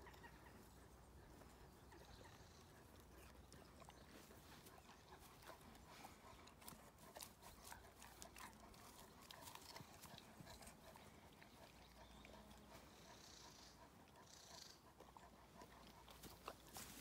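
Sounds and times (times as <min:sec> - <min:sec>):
dog chewing an apple: 0:02.3 - 0:12.9.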